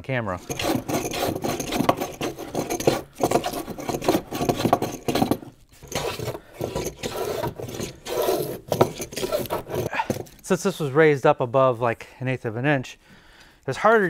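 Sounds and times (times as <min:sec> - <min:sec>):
hand plane shaving wood: 0:00.4 - 0:10.5.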